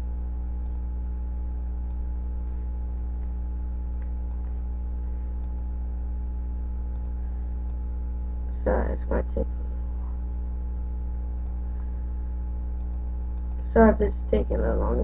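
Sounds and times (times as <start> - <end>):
low electrical hum: 0.0 - 15.0
computer mouse clicks: 0.6 - 0.9, 5.4 - 5.7, 6.9 - 7.8, 12.8 - 13.6.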